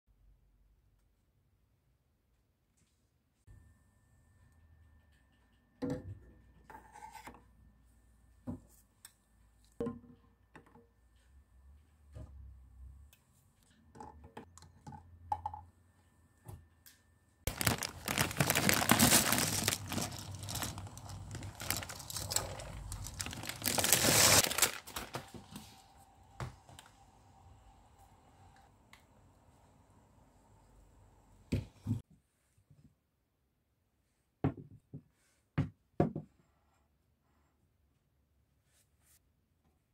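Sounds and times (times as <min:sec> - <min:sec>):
dry pasta poured into metal pot: 0:17.5 - 0:24.9.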